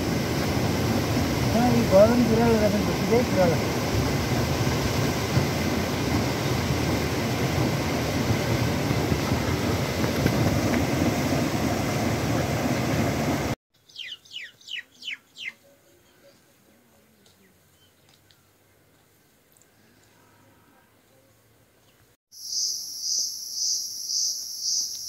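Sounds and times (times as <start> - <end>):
mountain stream rushing: 0.0 - 13.6.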